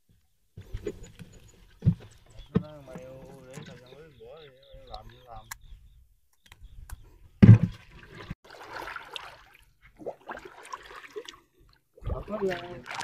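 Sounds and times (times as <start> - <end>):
water splashing and sloshing: 0.6 - 5.2, 7.2 - 13.0
heavy splash: 7.4 - 11.4, 12.1 - 13.0.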